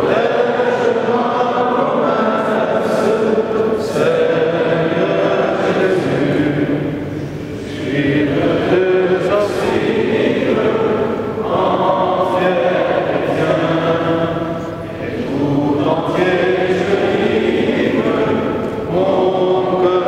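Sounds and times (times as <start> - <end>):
choir chanting a hymn: 0.0 - 20.0.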